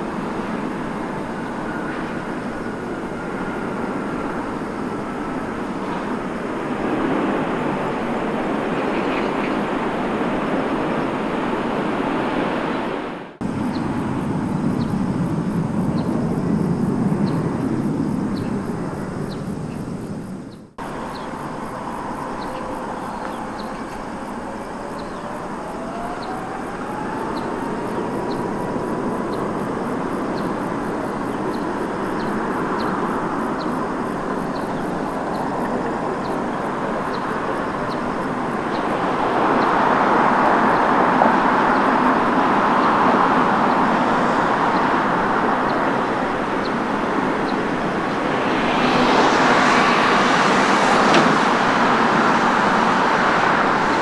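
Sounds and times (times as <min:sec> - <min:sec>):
jet engines running: 0:00.0 - 0:54.0
engine whine rising in pitch: 0:13.2 - 0:31.0.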